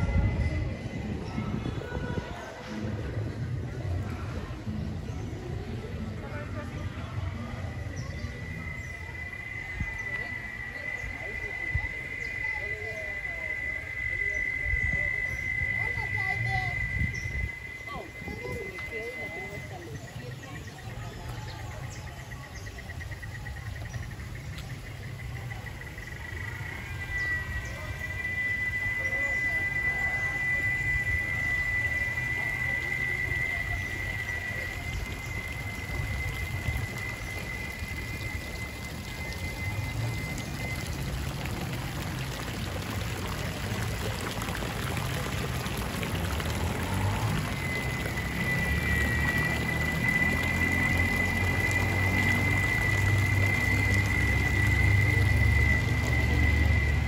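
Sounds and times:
running water: 0:01.8 - 0:57.0
insect trilling: 0:07.9 - 0:20.7, 0:21.9 - 0:41.4, 0:46.8 - 0:57.0.

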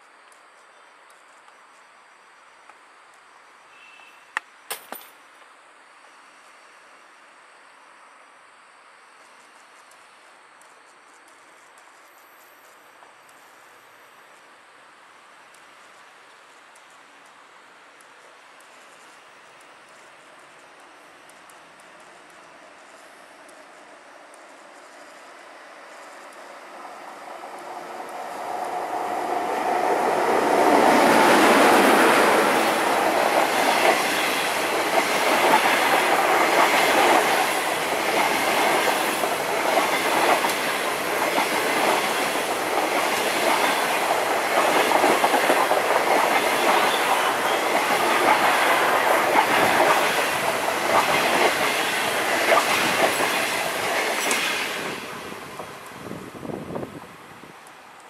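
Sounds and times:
electric locomotive passing: 0:06.0 - 0:58.0
wheels clicking over rail joints: 0:18.6 - 0:55.7.

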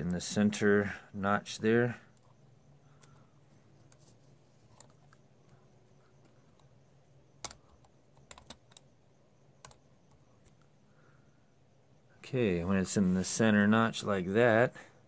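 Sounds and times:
small parts clicking and tapping: 0:02.1 - 0:06.8, 0:07.4 - 0:08.9.

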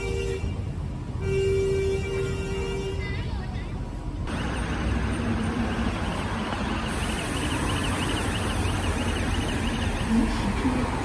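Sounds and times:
road vehicles passing: 0:00.0 - 0:11.0.

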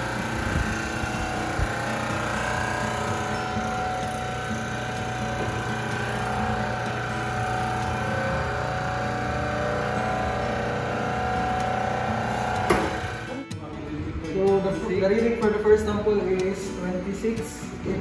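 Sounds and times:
hydraulic pump humming: 0:00.0 - 0:13.6.

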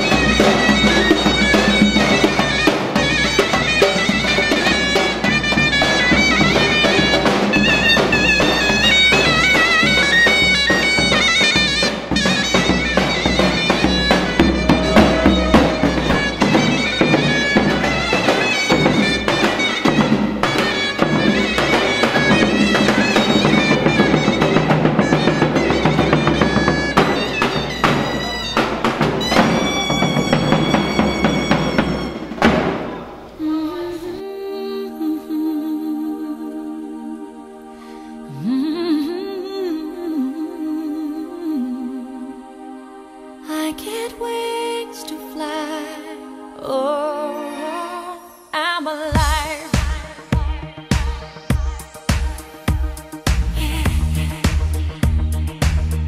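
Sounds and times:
drum beats: 0:00.0 - 0:33.4, 0:49.1 - 0:56.0
shrill reed wind instrument melody: 0:00.0 - 0:36.0
calmer music: 0:00.0 - 0:56.0.

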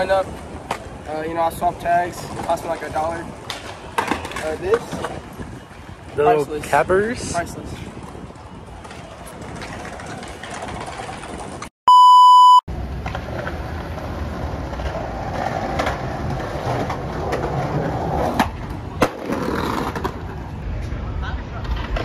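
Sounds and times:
outdoor street noise: 0:00.0 - 0:22.0
skateboard clacks: 0:02.2 - 0:05.2, 0:08.0 - 0:11.7
censor bleep: 0:11.9 - 0:12.7.

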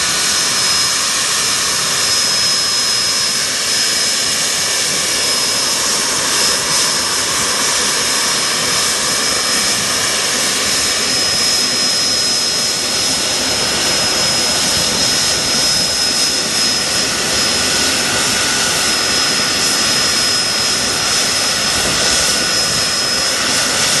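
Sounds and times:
high-pitched turbine whistle: 0:00.0 - 0:24.0
jet turbines running: 0:00.0 - 0:24.0.

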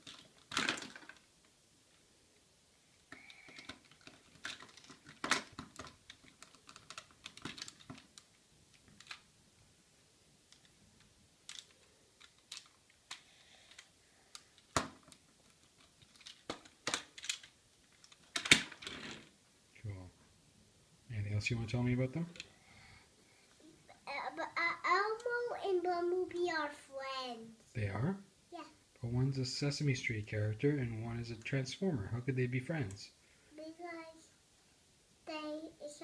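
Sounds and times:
plastic toy parts clicking: 0:03.1 - 0:09.2, 0:11.4 - 0:19.0.

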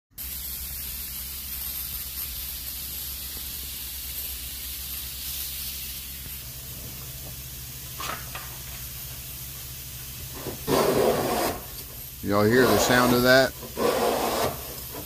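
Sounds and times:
steady hiss: 0:00.1 - 0:15.0.

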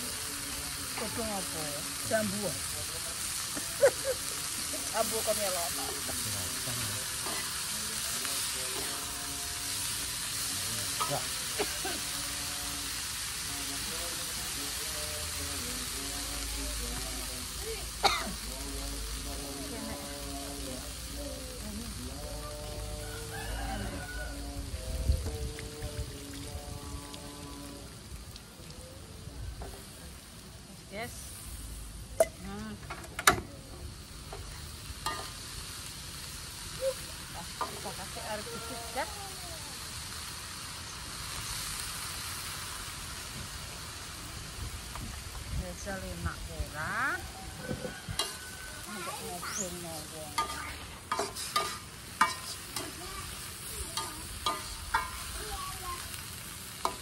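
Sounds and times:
greens sizzling in a frying pan: 0:00.0 - 0:57.0
metal spatula scraping: 0:50.3 - 0:53.0.

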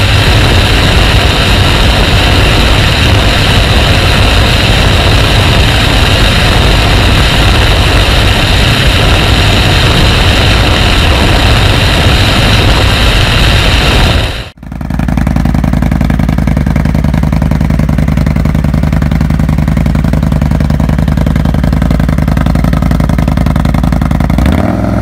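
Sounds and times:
wind on microphone: 0:00.0 - 0:14.6
motorcycle engine running: 0:00.0 - 0:25.0.

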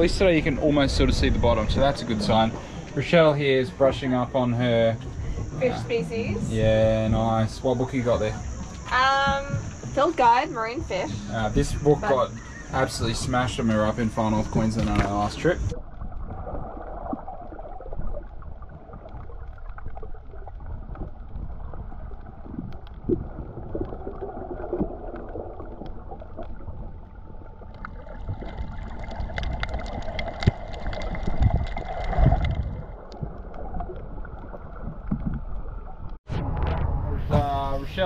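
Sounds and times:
muffled underwater rumble: 0:00.0 - 0:38.0
clicks and crackles: 0:14.7 - 0:36.9.

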